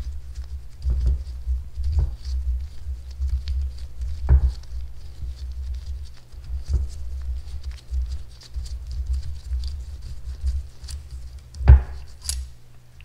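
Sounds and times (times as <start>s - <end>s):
tool clicking and scraping: 10.6s - 12.5s.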